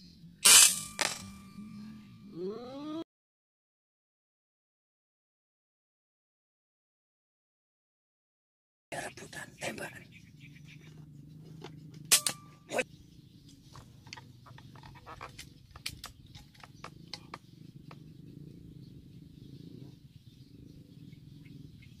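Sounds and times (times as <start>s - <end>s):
low steady hum: 0.0s - 2.7s
sharp ringing clicks: 12.1s - 12.8s.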